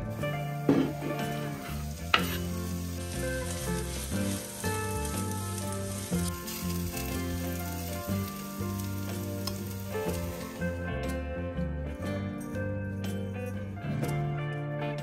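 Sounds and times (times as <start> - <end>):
food sizzling in oil: 0.0 - 11.0
background music: 0.0 - 15.0
stirring in a pan: 0.9 - 10.6.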